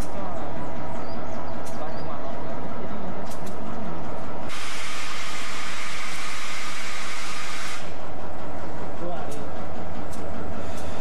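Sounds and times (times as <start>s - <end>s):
diesel locomotive hum: 0.0s - 11.0s
compressed air hissing: 4.5s - 8.0s.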